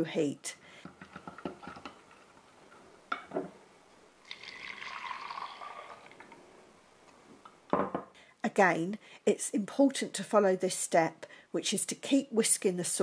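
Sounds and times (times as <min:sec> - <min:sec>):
liquid pouring into saucepan: 0:04.2 - 0:06.3.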